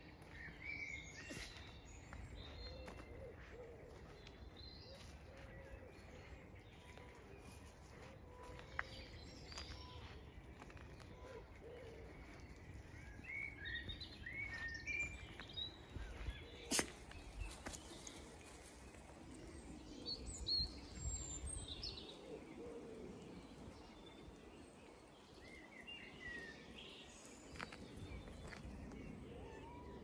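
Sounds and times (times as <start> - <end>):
birds singing: 0.0 - 30.0
wind rumble on microphone: 19.3 - 22.2.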